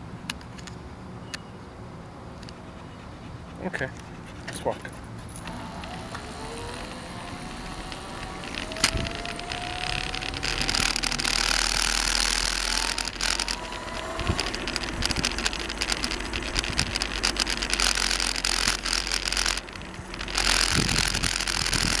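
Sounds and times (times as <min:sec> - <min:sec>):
road noise rushing and rattling: 0:00.0 - 0:22.0
wind on microphone: 0:05.6 - 0:17.7, 0:19.8 - 0:22.0.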